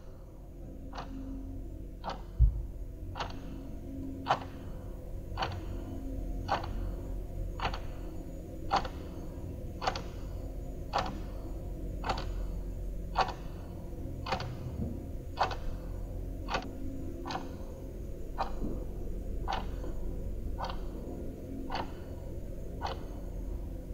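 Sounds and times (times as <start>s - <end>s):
low steady hum: 0.0s - 23.9s
clock ticking: 0.9s - 1.2s, 2.0s - 3.6s, 4.2s - 4.6s, 5.4s - 5.8s, 6.5s - 6.9s, 7.6s - 8.0s, 8.7s - 9.2s, 9.8s - 10.3s, 10.9s - 11.4s, 12.0s - 12.5s, 13.2s - 14.6s, 15.4s - 15.8s, 16.5s - 17.7s, 18.3s - 18.7s, 19.4s - 19.9s, 20.5s - 21.1s, 21.7s - 22.2s, 22.8s - 23.9s.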